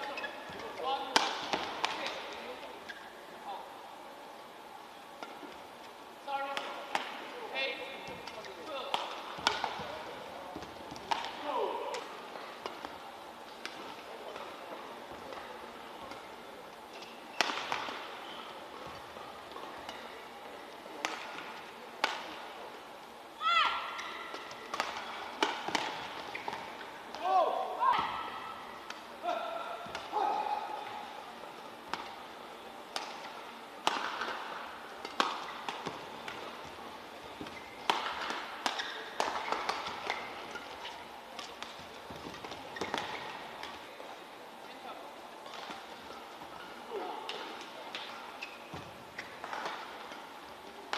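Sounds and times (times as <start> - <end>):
shoes squeaking on court: 0.0 - 1.0, 2.0 - 3.3, 15.2 - 20.3, 24.0 - 27.1, 34.9 - 43.9, 48.0 - 50.4
racket striking shuttlecock: 1.1 - 2.2, 8.2 - 10.0, 10.6 - 12.9, 17.0 - 18.1, 21.0 - 22.4, 23.9 - 27.3, 32.9 - 43.8.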